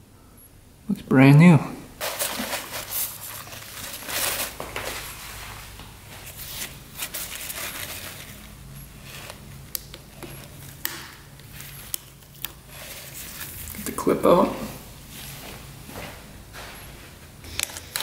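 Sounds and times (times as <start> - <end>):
hands handling parts and tools: 2.0 - 5.2.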